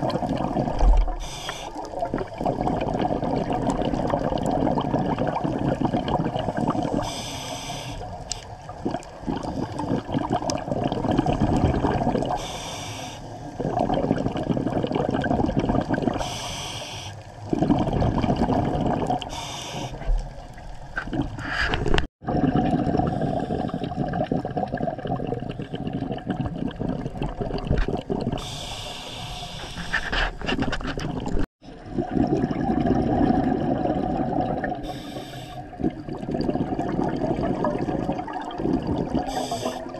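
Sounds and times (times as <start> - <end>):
exhaled bubbles underwater: 0.0 - 39.9
breathing through a regulator: 1.1 - 2.0, 5.8 - 8.5, 9.3 - 10.2, 12.2 - 14.8, 15.5 - 17.8, 19.2 - 20.1, 22.9 - 24.3, 28.4 - 30.6, 34.7 - 35.9, 38.6 - 39.9.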